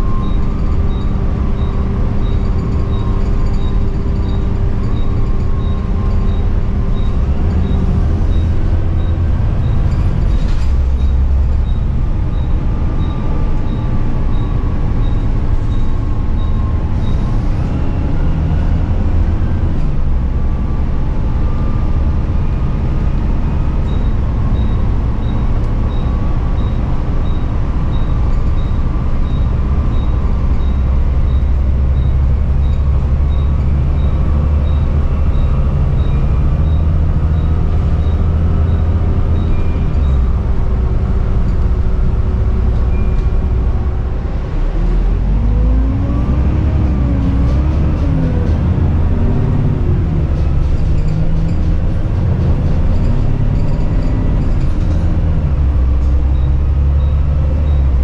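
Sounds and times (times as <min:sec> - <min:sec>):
diesel engine drone: 0:00.0 - 0:58.0
gearbox whine: 0:00.0 - 0:58.0.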